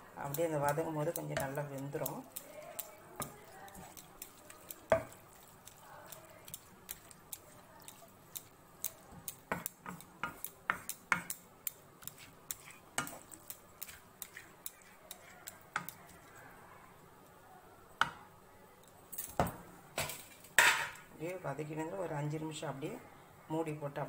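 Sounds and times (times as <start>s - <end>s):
spatula scraping a frying pan: 0.3s - 11.4s, 12.0s - 16.4s.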